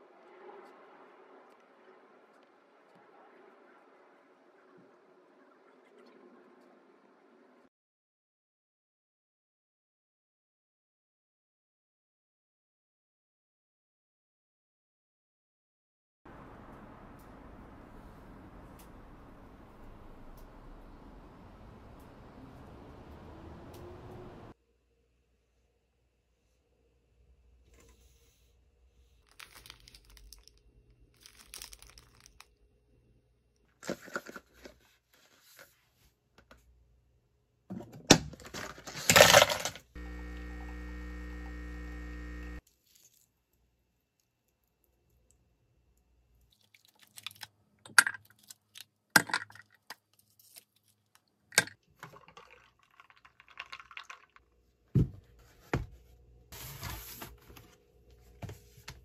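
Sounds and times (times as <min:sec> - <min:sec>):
steady hum: 0:40.0 - 0:42.6.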